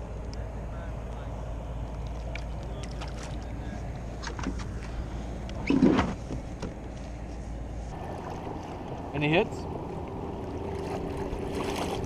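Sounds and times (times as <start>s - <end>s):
water and wind noise: 0.0s - 12.0s
kayak handling noise: 2.0s - 7.5s.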